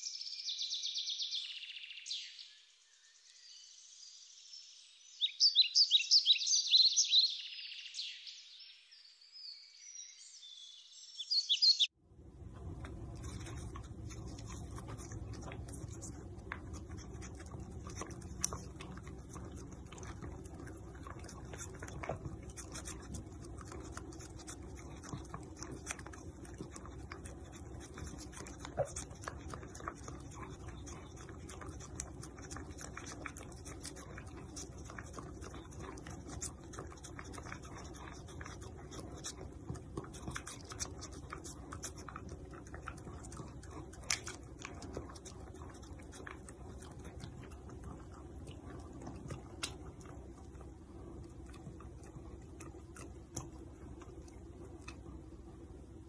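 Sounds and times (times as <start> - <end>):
low room hum: 12.0 - 56.0
dog licking and smacking: 12.4 - 55.8.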